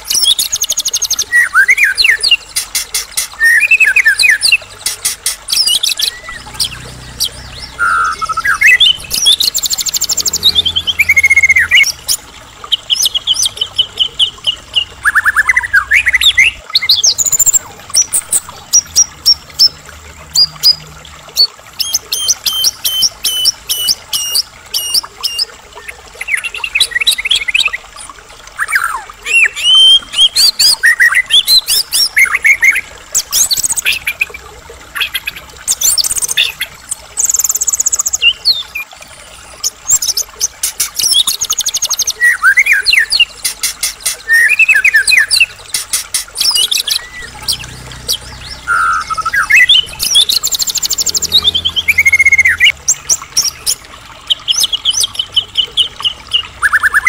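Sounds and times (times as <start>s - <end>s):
songbird singing: 3.2s - 27.8s, 41.0s - 57.0s.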